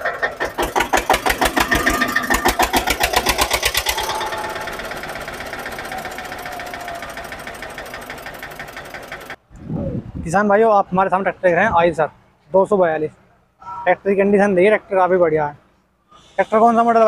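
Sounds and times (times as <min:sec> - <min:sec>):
diesel tractor engine knocking: 0:00.0 - 0:09.4.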